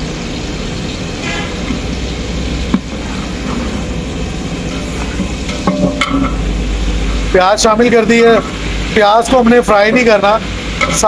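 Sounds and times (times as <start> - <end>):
gas burner roaring: 0.0 - 11.0
ladle knocking on pot: 5.2 - 6.4.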